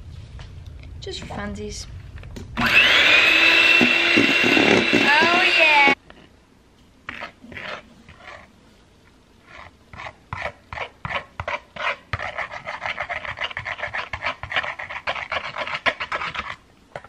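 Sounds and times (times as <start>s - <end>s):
whisk beating in glass bowl: 3.4s - 6.0s, 10.0s - 16.6s.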